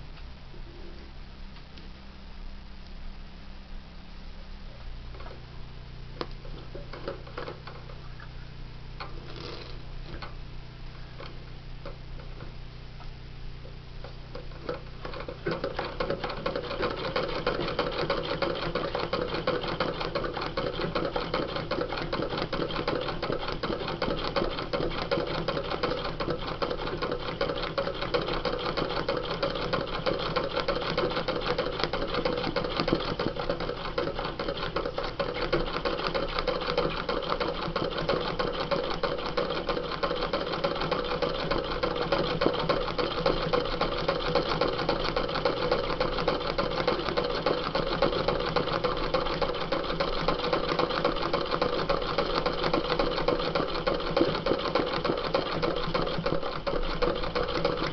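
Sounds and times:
sewing machine running: 9.2s - 9.8s, 14.5s - 57.9s.

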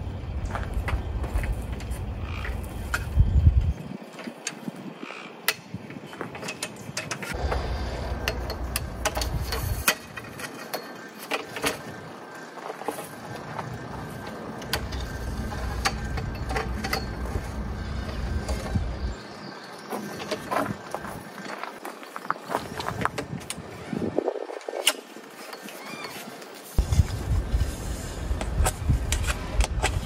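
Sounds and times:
clicks and knocks of awning poles: 5.4s - 12.0s, 12.6s - 19.1s.

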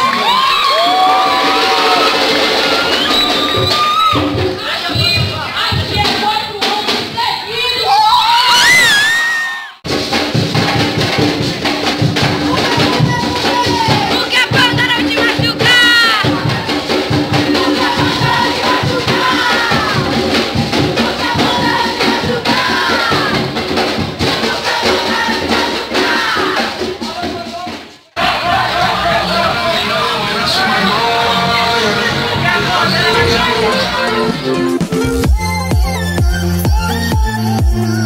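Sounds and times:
crowd shouting and cheering: 0.0s - 9.9s, 12.2s - 38.0s
loud dance music: 9.8s - 38.0s.

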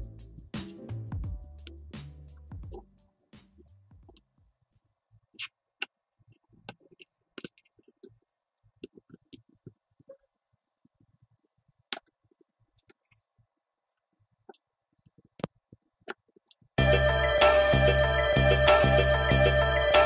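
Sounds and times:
plastic parts clicking together: 5.4s - 10.1s, 11.8s - 16.8s.

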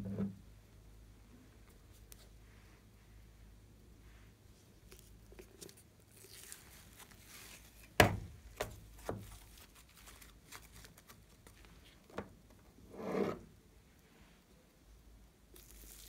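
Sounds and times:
paper crinkling: 4.8s - 12.1s, 15.6s - 16.0s.

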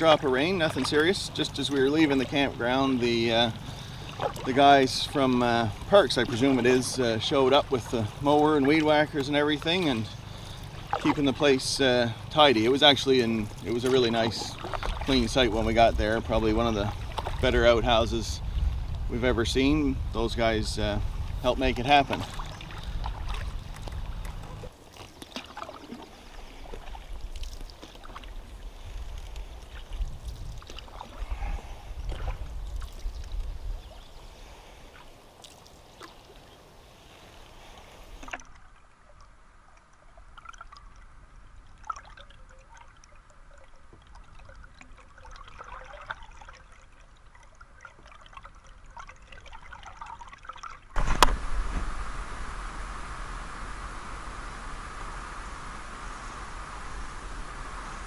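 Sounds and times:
paddle swishing water: 0.0s - 58.0s
water trickling and lapping: 0.0s - 58.0s
low rumble: 51.0s - 58.0s.

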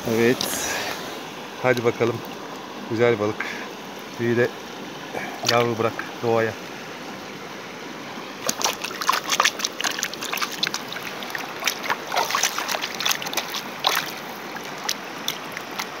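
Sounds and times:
stream running over stones: 0.0s - 16.0s
hand splashing in water: 8.4s - 16.0s.

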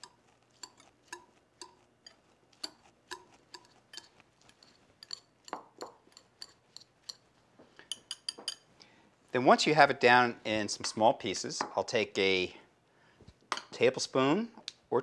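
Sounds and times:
whisk clicking against glass bowl: 0.0s - 7.3s.

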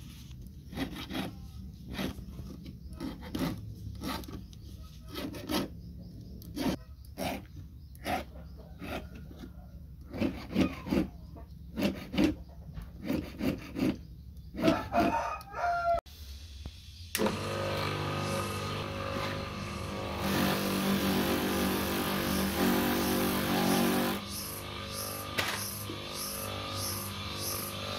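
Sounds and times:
file rasping on metal: 0.6s - 5.8s, 6.4s - 15.2s
polishing motor running: 17.2s - 27.9s.

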